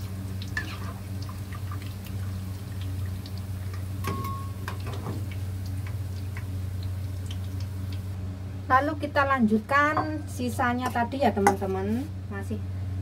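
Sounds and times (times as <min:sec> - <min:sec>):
frying oil crackling and popping: 0:00.0 - 0:08.2
oil dripping into pan: 0:00.0 - 0:08.2.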